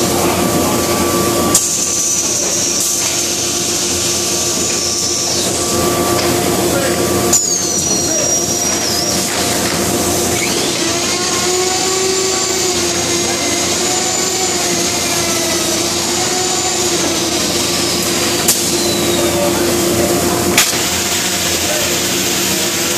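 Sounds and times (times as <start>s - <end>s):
machine mechanical hum and hiss: 0.0s - 22.9s
high whistling tone: 4.5s - 6.2s, 7.3s - 9.4s, 10.3s - 18.0s, 18.7s - 19.6s.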